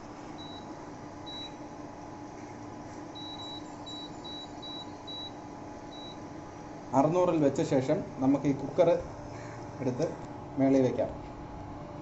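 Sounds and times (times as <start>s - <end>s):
steady low hum: 0.0s - 12.0s
cooker panel beeps: 0.4s - 1.6s, 3.2s - 6.2s.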